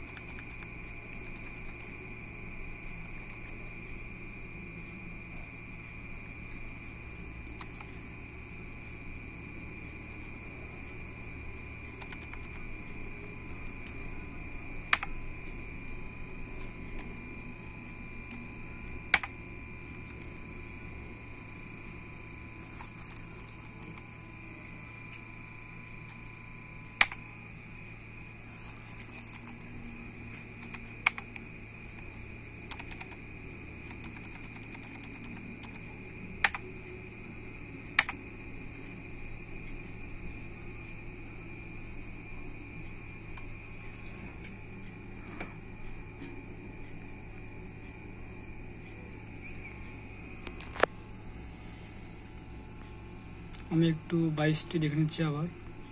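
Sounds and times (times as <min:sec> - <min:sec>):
computer hum: 0:00.0 - 0:55.9
faint high whine: 0:00.0 - 0:55.9
keyboard keystroke clicks: 0:14.9 - 0:15.1, 0:19.1 - 0:19.3, 0:27.0 - 0:27.2, 0:30.6 - 0:31.4, 0:32.7 - 0:33.2, 0:36.4 - 0:36.6, 0:38.0 - 0:38.2.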